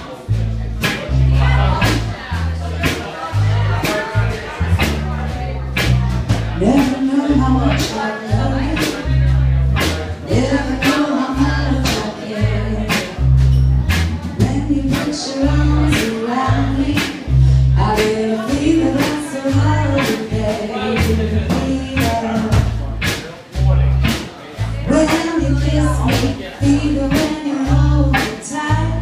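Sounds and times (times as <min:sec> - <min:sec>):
drum kit beat: 0:00.0 - 0:29.0
woman singing: 0:06.6 - 0:09.2, 0:10.2 - 0:13.2, 0:14.2 - 0:22.8, 0:24.8 - 0:29.0.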